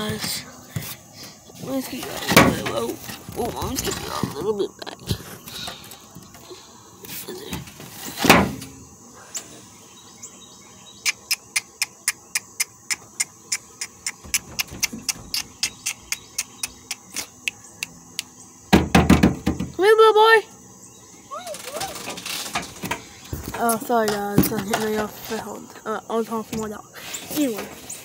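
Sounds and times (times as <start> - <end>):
loud thump: 18.7 - 19.8.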